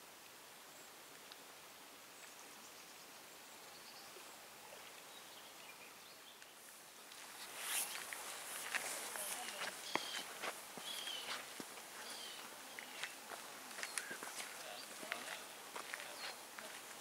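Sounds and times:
faint steady hiss: 0.0 - 17.0
rustling: 7.0 - 17.0
footsteps: 7.1 - 17.0
bird chirps: 9.4 - 11.4, 12.0 - 13.1.

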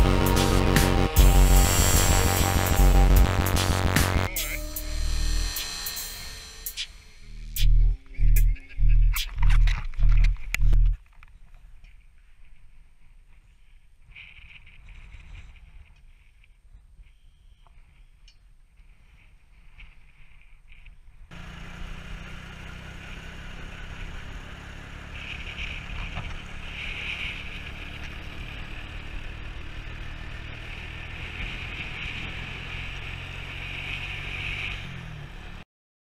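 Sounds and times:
quad bike engine running: 0.0 - 4.6, 21.3 - 35.6.

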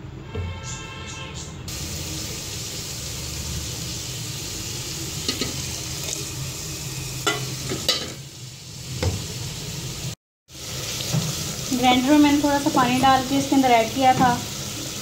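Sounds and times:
hot oil sizzling in a pot: 1.7 - 15.0
utensils knocking against a pot: 7.2 - 8.2.

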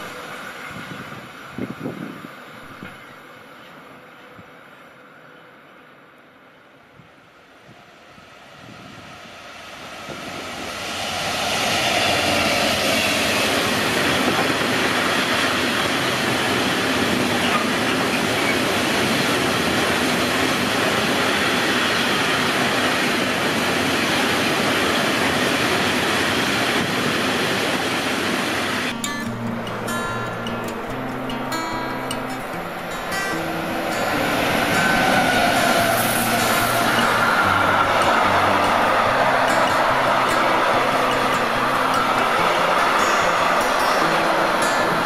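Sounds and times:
acoustic guitar music: 0.0 - 4.1, 10.8 - 45.0
freight train wheels rattling: 10.1 - 45.0.

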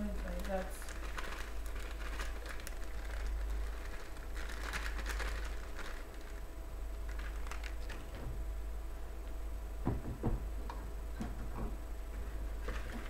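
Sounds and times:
plastic bag crinkling: 0.0 - 8.3, 12.4 - 13.0
steady low hum: 0.0 - 13.0.

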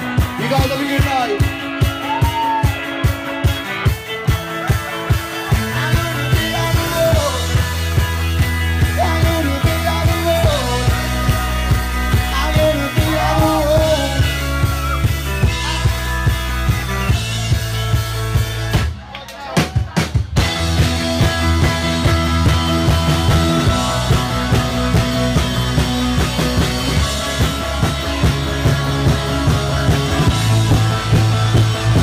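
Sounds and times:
bass and guitar: 0.0 - 32.0
drums: 0.0 - 32.0
person singing: 4.7 - 7.8, 8.8 - 16.1.

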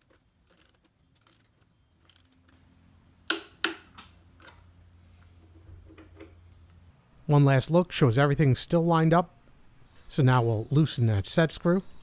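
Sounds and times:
ratchet wrench clicking: 0.0 - 2.4.

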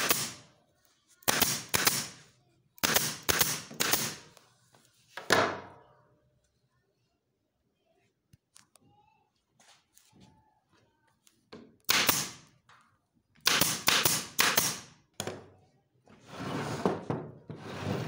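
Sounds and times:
staple gun firing: 11.9 - 12.4, 13.4 - 14.9.

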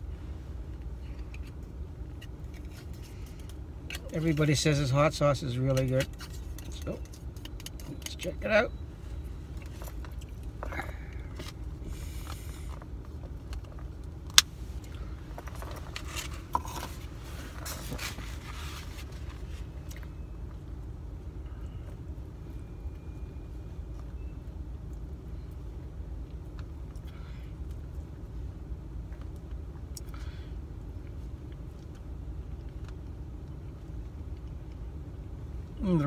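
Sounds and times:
steady low rumble: 0.0 - 36.0
food packaging rustling and scraping: 1.0 - 4.6, 5.8 - 8.2, 14.6 - 20.1.

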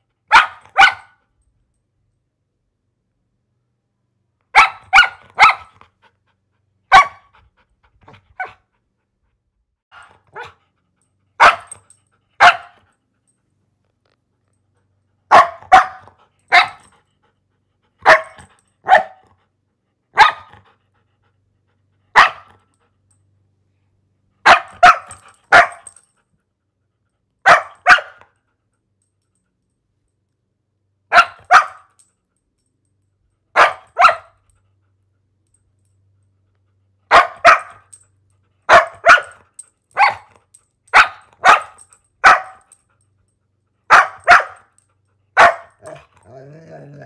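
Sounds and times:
dog barking: 0.3 - 1.2, 4.5 - 5.8, 6.9 - 7.3, 9.9 - 10.6, 11.4 - 11.8, 12.4 - 12.8, 15.3 - 16.8, 18.0 - 19.2, 20.1 - 20.6, 22.1 - 22.6, 24.4 - 25.9, 27.4 - 28.2, 31.1 - 31.9, 33.6 - 34.4, 37.1 - 37.9, 38.7 - 39.4, 40.0 - 40.3, 40.9 - 42.7, 43.9 - 44.8, 45.4 - 46.0.

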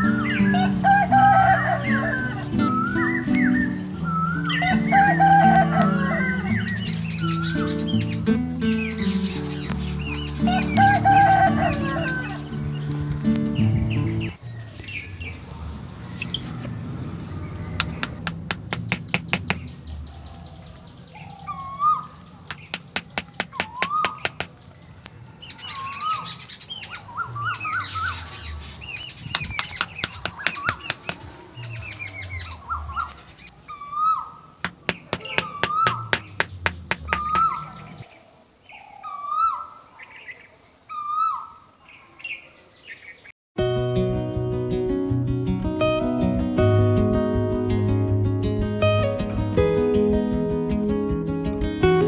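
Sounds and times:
soft background music: 0.0 - 14.3
birds chirping: 0.0 - 43.3
rapid clicking: 17.8 - 19.6, 22.5 - 24.5, 34.6 - 37.5.

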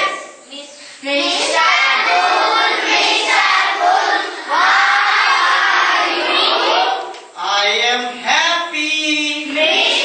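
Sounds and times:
children chanting in unison: 0.0 - 0.4, 1.0 - 7.1, 9.6 - 10.0.

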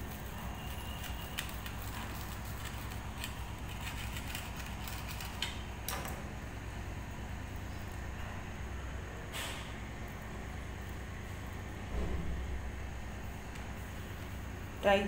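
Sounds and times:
toasted bread crackling: 0.0 - 5.8
steady low hum: 0.0 - 15.0.

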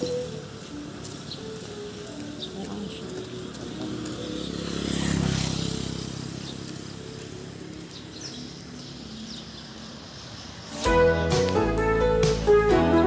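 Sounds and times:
music: 0.0 - 4.8, 10.6 - 13.0
quiet street background: 0.0 - 13.0
small motorcycle passing: 0.1 - 10.9.

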